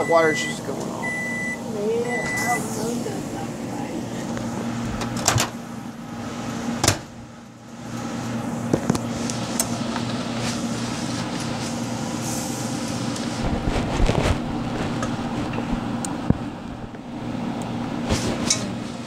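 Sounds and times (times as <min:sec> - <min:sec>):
kitchen appliance humming: 0:00.0 - 0:19.0.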